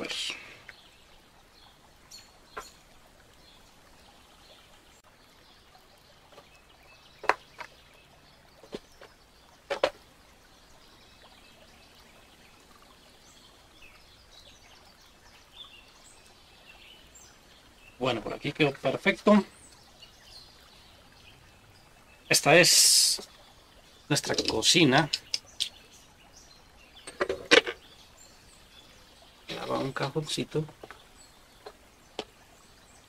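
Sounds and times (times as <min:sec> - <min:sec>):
faint steady background noise: 0:00.0 - 0:33.0
wooden pieces clicking and knocking: 0:09.7 - 0:10.0.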